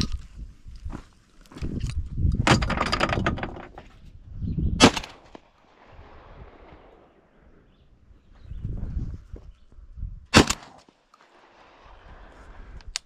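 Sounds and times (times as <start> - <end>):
rustling and clatter of gun: 0.0 - 4.2
shotgun firing: 4.8 - 6.9, 10.3 - 10.9.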